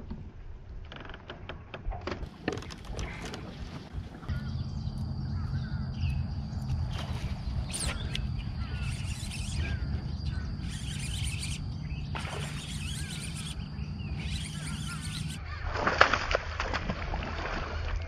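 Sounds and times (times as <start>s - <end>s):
birds chirping: 2.9s - 15.6s.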